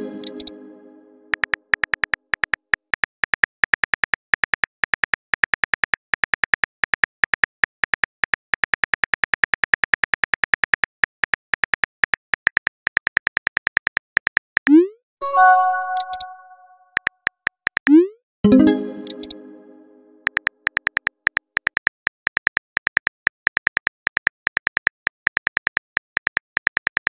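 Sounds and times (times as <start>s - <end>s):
phone keyboard typing clicks: 0.2s - 0.6s, 15.8s - 16.4s.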